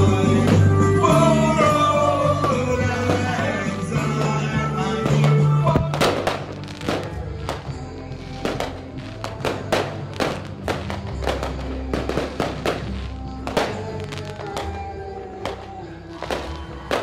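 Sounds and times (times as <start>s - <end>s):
fireworks banging: 0.0s - 17.0s
music with held notes: 0.0s - 17.0s.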